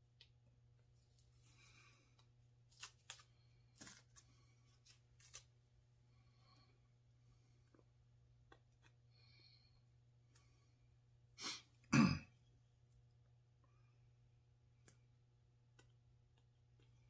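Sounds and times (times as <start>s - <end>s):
tape and paper crinkling as peeled: 1.0s - 5.6s.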